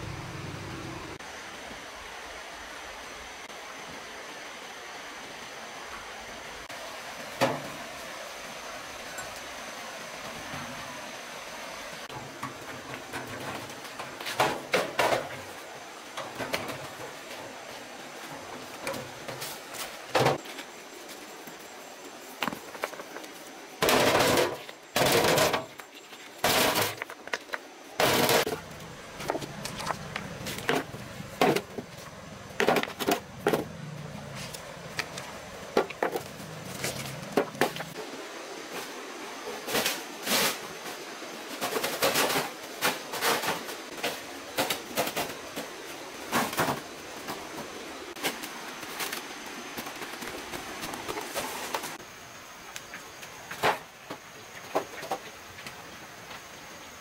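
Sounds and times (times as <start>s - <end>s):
stones clanking into metal wheelbarrow: 23.8s - 38.0s.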